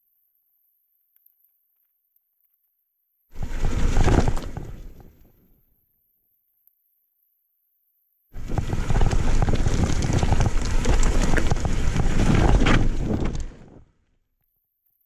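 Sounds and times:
bike tyre noise: 3.4 - 5.4, 8.4 - 13.9
bike knocks and rattles: 8.4 - 13.6
wind buffeting microphone: 8.4 - 13.9.

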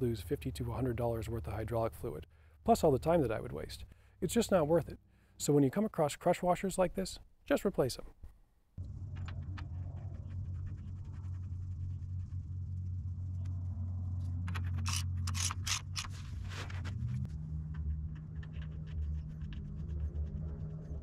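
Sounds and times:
steady low hum: 8.8 - 21.0
wrench clicking and scraping: 14.5 - 16.2
wrench rasping strokes: 14.8 - 16.1.

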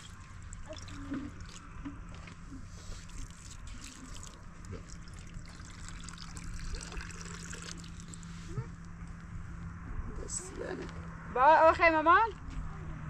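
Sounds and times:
water trickling into a metal bowl: 0.0 - 1.7, 3.0 - 8.3.

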